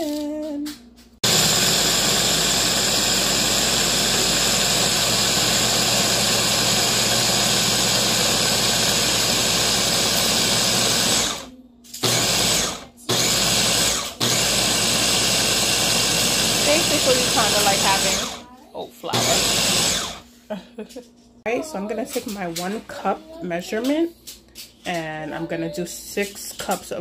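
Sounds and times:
chopper motor grinding oats: 1.2s - 18.4s, 19.1s - 20.2s.

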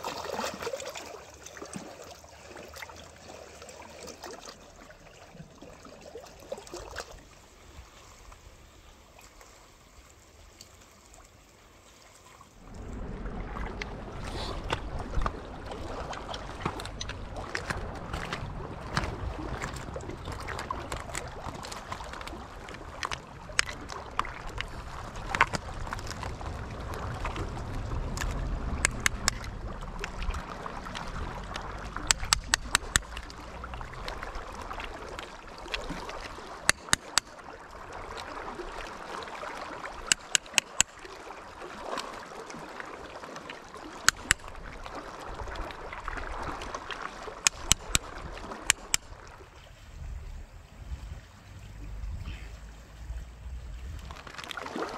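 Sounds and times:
small waves lapping on rocks: 0.0s - 54.9s
low rumble: 12.6s - 35.2s, 49.9s - 54.4s
blade clicking on shells: 32.0s - 33.3s, 36.7s - 37.3s, 40.1s - 40.9s, 44.1s - 44.4s, 47.5s - 48.0s, 48.7s - 49.0s.

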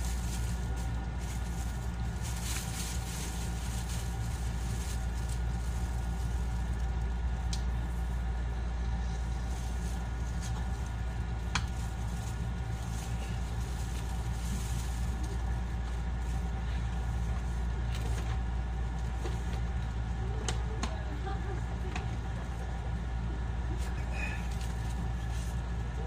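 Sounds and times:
train cabin low hum: 0.0s - 26.0s.

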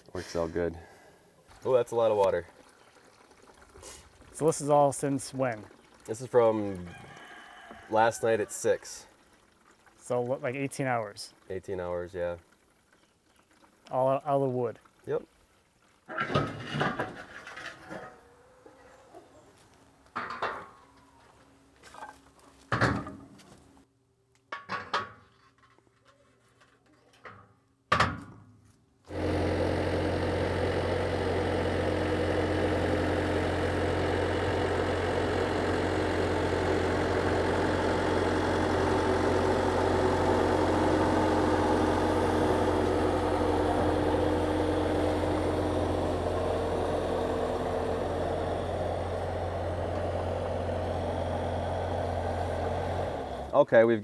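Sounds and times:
skid steer engine running: 29.1s - 53.6s.

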